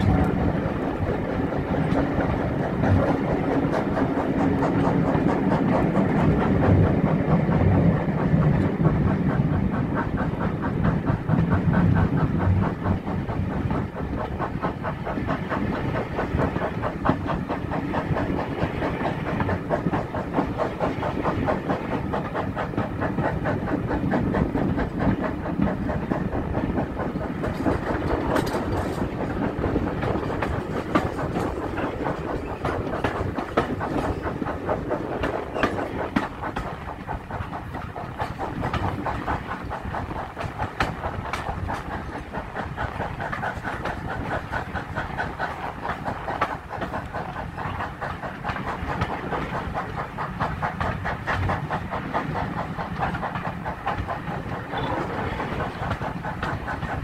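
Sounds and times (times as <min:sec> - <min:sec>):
train wheels clickety-clack: 0:00.0 - 0:57.0.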